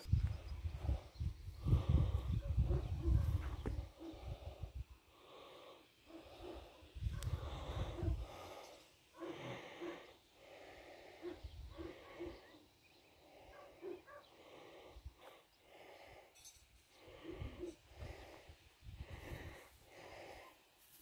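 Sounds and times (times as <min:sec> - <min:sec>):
rustling of dry grass: 0:19.0 - 0:21.0.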